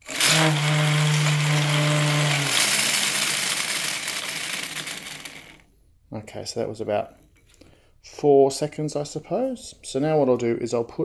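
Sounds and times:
steady buzzing tone: 0.0 - 5.4
gear teeth whirring rattle: 1.9 - 5.6.

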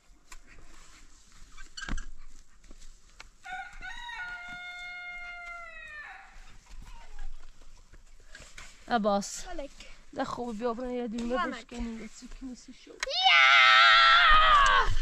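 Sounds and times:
rooster crowing: 3.4 - 6.4.

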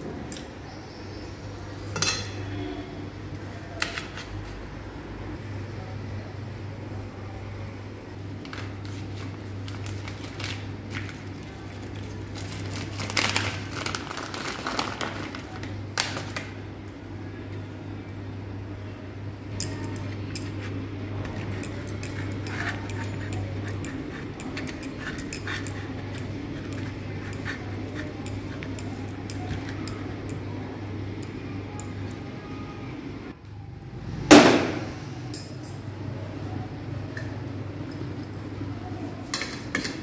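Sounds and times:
steady low hum: 15.2 - 40.0
cheese scraping on a metal grater: 20.0 - 30.1.

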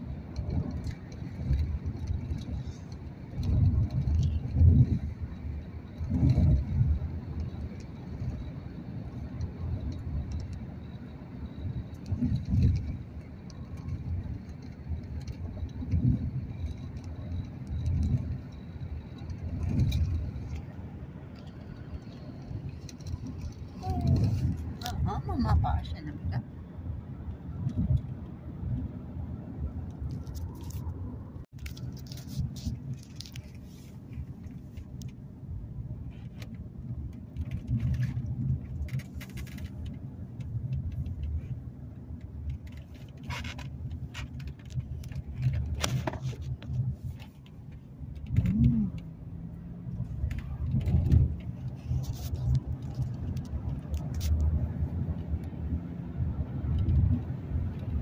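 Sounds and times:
tyre and engine rumble: 0.0 - 58.0
clicks and rattles: 29.9 - 35.2, 36.0 - 49.1, 49.9 - 55.6.

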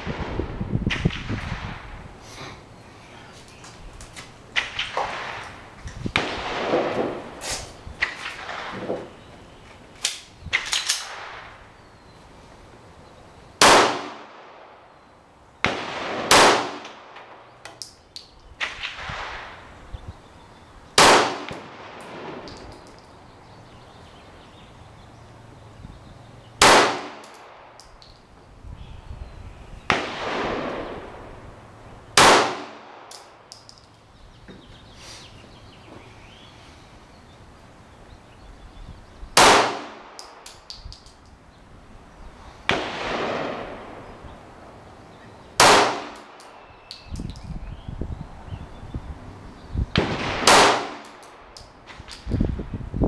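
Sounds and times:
pistol shots: 13.6 - 14.4, 15.6 - 17.4, 21.0 - 22.6, 26.6 - 27.8, 32.2 - 33.2, 39.4 - 40.5, 45.6 - 46.4, 50.0 - 51.3.

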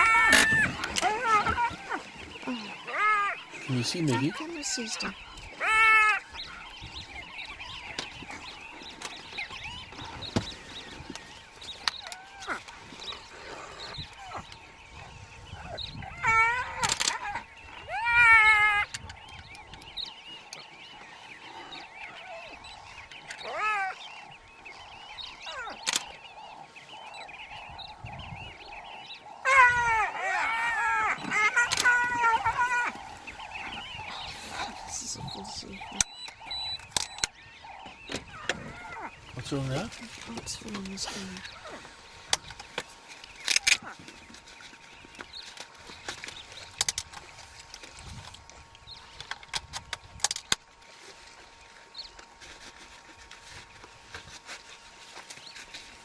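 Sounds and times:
hyena squeal: 0.0 - 2.0, 29.4 - 33.0
hyenas squealing: 0.0 - 6.6, 15.6 - 19.0, 23.3 - 24.1, 29.4 - 36.8
small birds twittering: 0.0 - 56.0.

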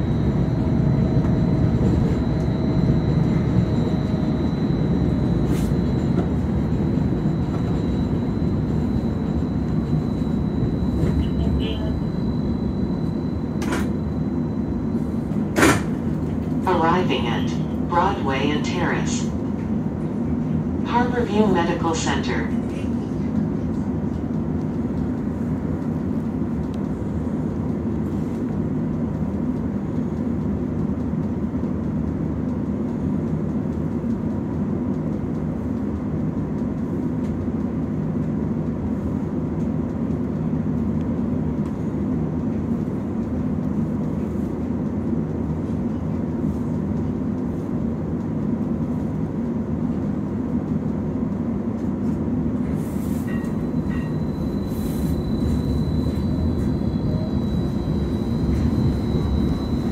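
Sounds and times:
thin high whine: 0.0 - 15.7, 52.7 - 59.9
low hum of ventilation: 0.0 - 59.9.

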